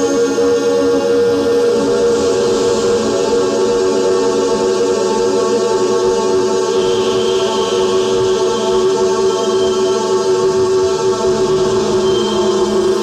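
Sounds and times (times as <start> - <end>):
modular synthesizer drone: 0.0 - 13.0
faint high synth tone: 11.3 - 13.0.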